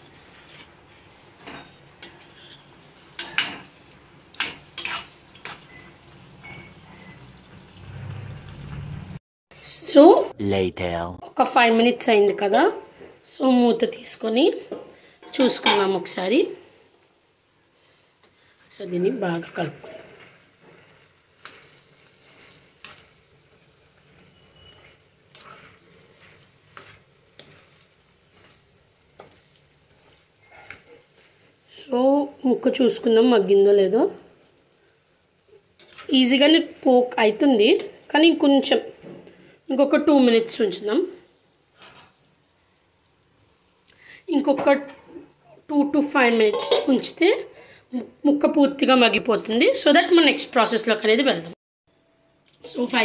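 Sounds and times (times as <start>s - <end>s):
metal spoon scraping a pan: 0.0s - 7.2s, 19.2s - 31.4s, 35.8s - 36.5s, 46.5s - 47.2s
faint sizzle of potatoes: 0.0s - 9.8s, 11.4s - 51.3s.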